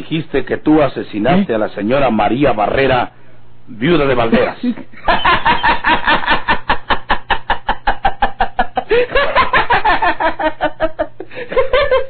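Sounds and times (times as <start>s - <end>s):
man laughing: 5.0s - 12.0s.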